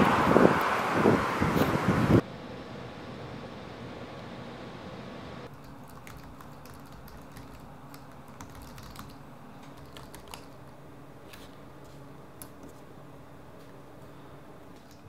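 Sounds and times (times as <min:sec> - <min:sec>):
laptop keyboard typing: 0:05.5 - 0:10.8.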